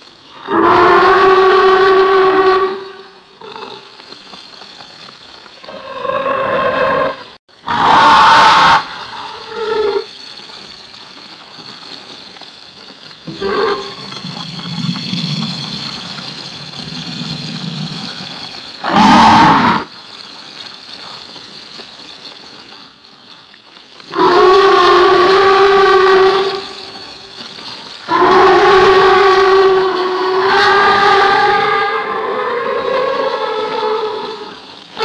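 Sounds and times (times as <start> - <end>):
alligator roaring: 18.8 - 19.9, 24.1 - 26.5, 28.1 - 34.6.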